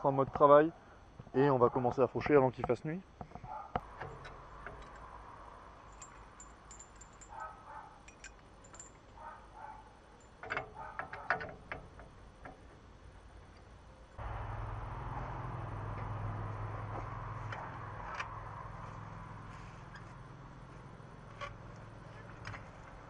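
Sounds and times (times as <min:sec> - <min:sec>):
metal chain clinking and rattling: 0:04.0 - 0:05.2, 0:05.8 - 0:12.0.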